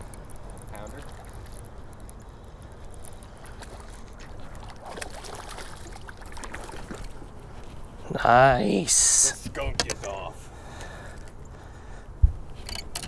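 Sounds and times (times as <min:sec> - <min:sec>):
fish splashing at surface: 0:03.2 - 0:07.2.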